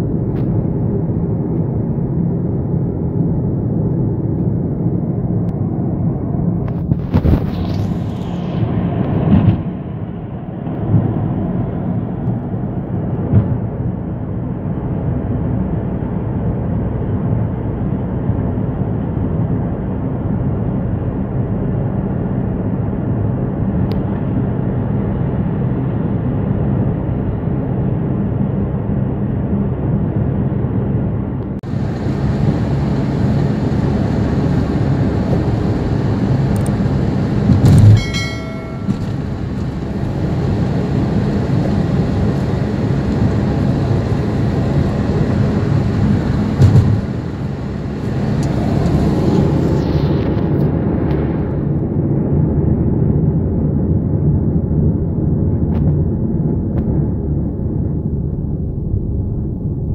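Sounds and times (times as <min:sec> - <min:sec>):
car engine and tyre rumble: 0:00.0 - 0:59.9
rushing noise: 0:05.6 - 0:14.1, 0:31.6 - 0:52.4.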